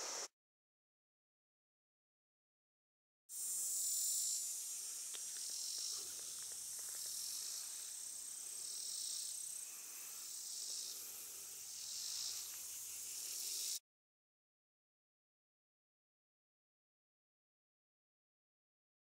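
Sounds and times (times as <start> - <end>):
insect chorus buzzing: 0.0 - 0.3, 3.3 - 13.8.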